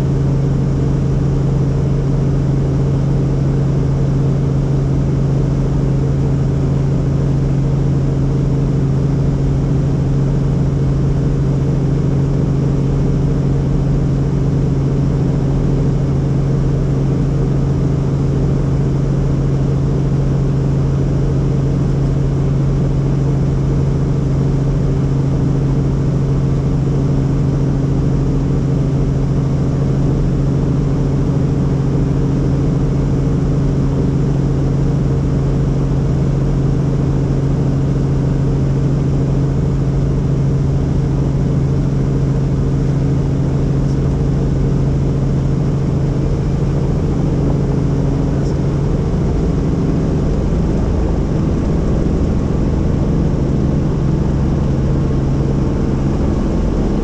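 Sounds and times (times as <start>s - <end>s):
helicopter engine and rotors drone: 0.0s - 57.0s.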